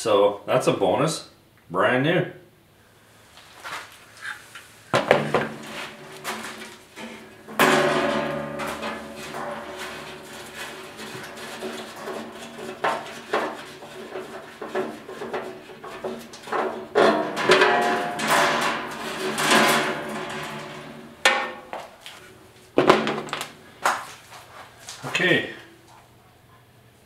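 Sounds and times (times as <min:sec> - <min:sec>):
metal clanks and knocks: 0:05.0 - 0:24.1.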